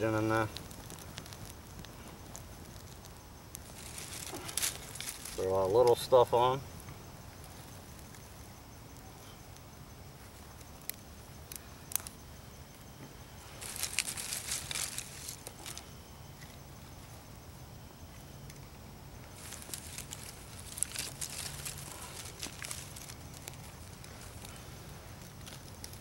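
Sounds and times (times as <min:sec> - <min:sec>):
sharp pops of fire: 0:00.0 - 0:06.0, 0:06.7 - 0:15.9
campfire crackling: 0:00.0 - 0:26.0.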